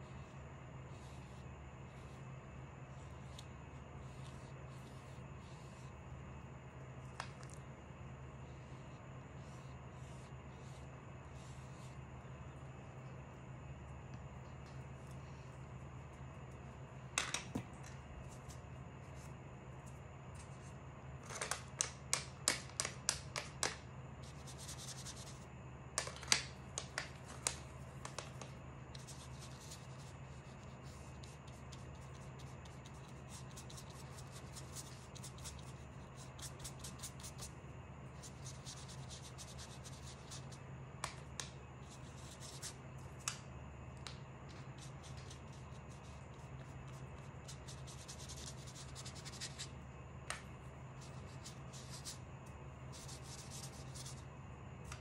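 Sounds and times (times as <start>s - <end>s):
paintbrush brushing on paper: 0.0s - 2.2s, 2.8s - 6.0s, 8.4s - 12.6s, 24.2s - 25.5s, 27.5s - 40.6s, 41.8s - 42.8s, 44.5s - 49.7s, 51.0s - 52.2s, 52.9s - 54.2s
faint low hum: 0.0s - 55.0s.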